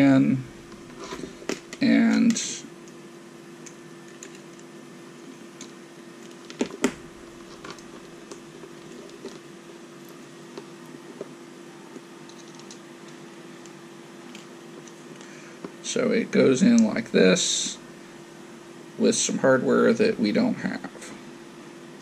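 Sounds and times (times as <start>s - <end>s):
steady hum: 0.0s - 22.0s.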